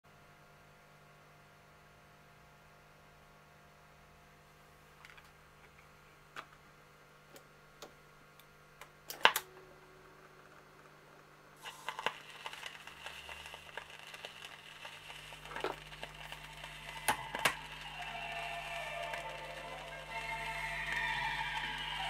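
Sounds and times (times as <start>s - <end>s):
record surface hiss and crackle: 0.1s - 22.0s
music from record: 11.7s - 22.0s.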